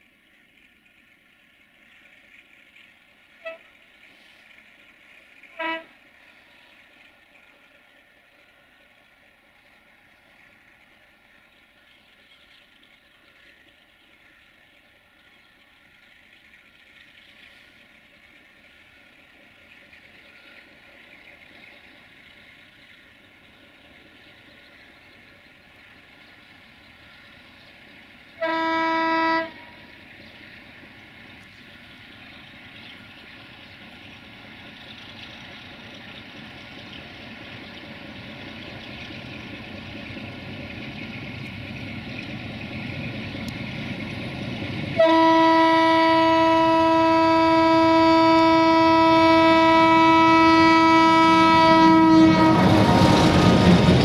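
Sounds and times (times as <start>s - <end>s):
diesel locomotive and train approaching: 0.0s - 54.0s
locomotive horn blast: 5.5s - 6.0s, 28.4s - 29.8s, 45.0s - 54.0s.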